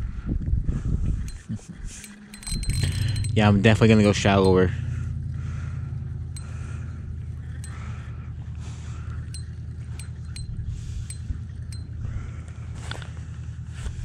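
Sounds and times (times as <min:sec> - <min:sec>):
fishing reel cranking rumble: 0:01.3 - 0:04.8, 0:09.2 - 0:12.0
sharp metallic reel ticks: 0:02.0 - 0:04.7, 0:09.3 - 0:11.9.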